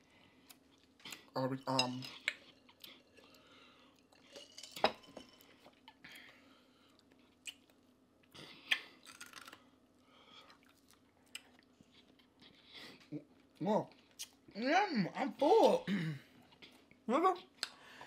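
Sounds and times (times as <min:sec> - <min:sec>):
people chewing: 0:00.0 - 0:14.4.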